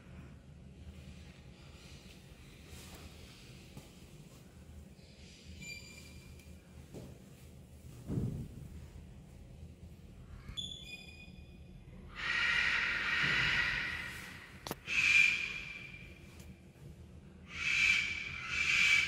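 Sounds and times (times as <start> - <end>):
parrots squawking: 12.1 - 16.2, 17.5 - 19.0.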